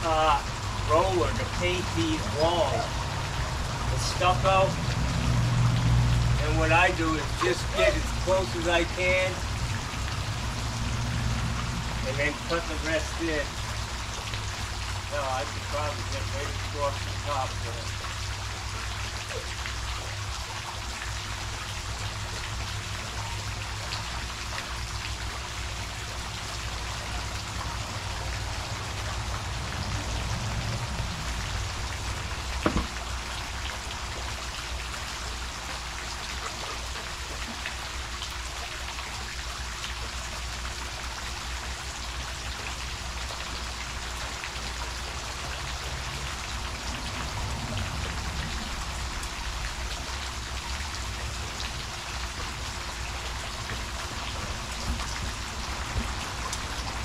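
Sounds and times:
sharp knock: 32.6 - 32.9.

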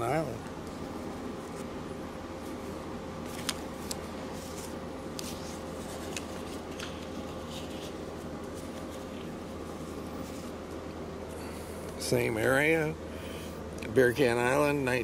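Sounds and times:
plastic sleeves and paper crinkling: 3.2 - 10.6.

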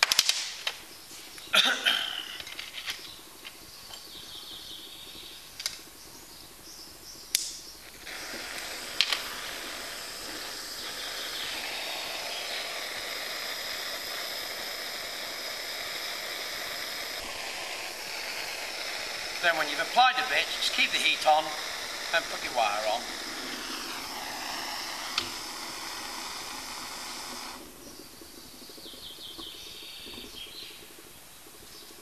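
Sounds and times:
blowtorch hissing: 6.9 - 32.0.

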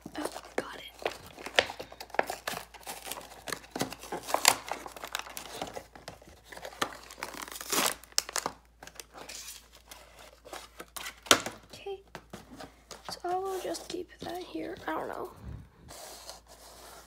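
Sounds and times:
cardboard packaging tearing: 0.0 - 11.5
plastic tray crinkling: 0.0 - 15.1.

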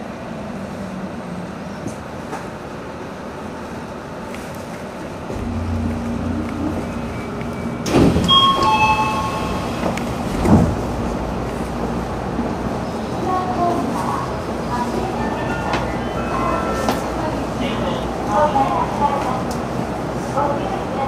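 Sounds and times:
brief high ringing tones: 5.4 - 10.0.

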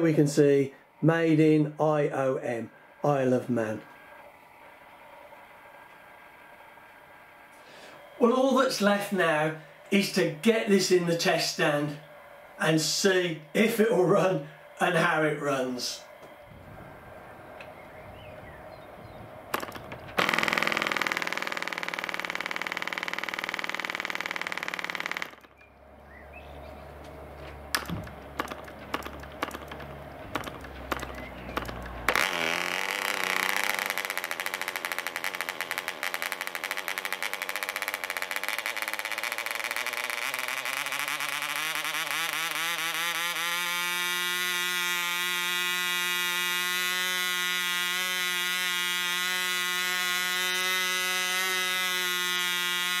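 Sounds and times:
model diesel engine running: 15.8 - 53.0
clicks: 19.5 - 25.7, 27.0 - 41.4.

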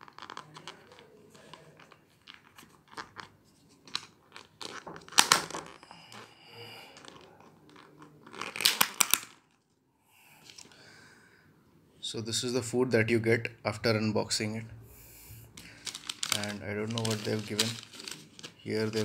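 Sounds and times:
plastic lid crinkling: 0.0 - 5.8, 7.0 - 9.6, 15.6 - 19.0.

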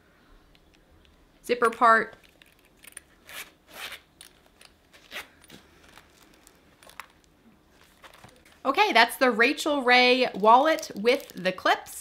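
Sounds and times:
wallet rustling: 2.2 - 8.7, 10.2 - 12.0
metal zipper being pulled open: 2.6 - 4.3, 4.9 - 5.5.

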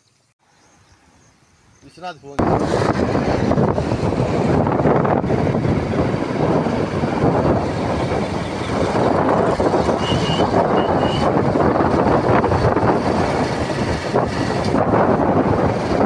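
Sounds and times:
wind buffeting microphone: 2.4 - 16.0.

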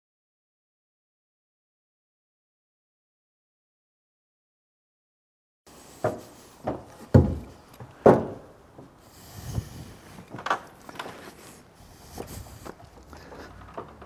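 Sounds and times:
wooden door knocks and clunks: 6.0 - 8.6
faint rubbing: 9.0 - 14.0.

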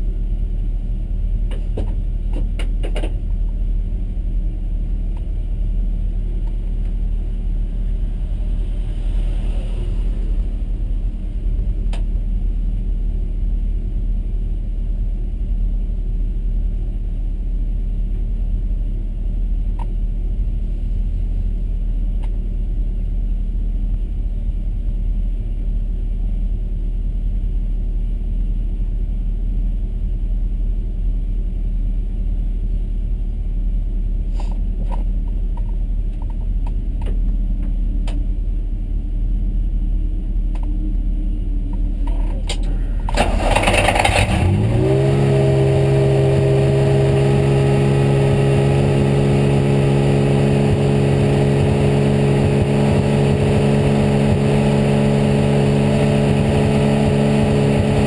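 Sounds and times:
low rumble: 0.0 - 58.0
racing engine starting and idling: 41.6 - 58.0.

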